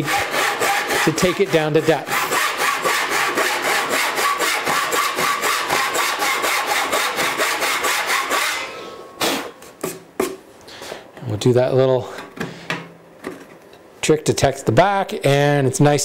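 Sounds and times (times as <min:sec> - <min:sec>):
handsaw cutting wood: 0:00.0 - 0:09.5.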